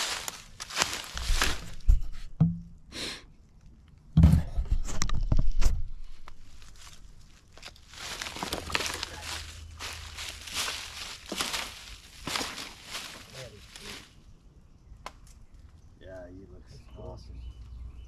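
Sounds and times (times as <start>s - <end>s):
footsteps in dry leaves: 0.0s - 2.0s, 6.0s - 14.2s
dull thumps: 1.2s - 2.8s.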